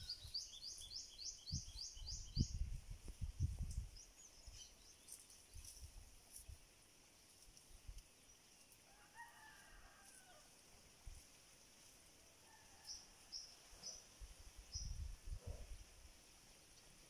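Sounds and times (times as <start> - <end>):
faint rooster crowing: 8.8 - 10.7, 12.3 - 14.0.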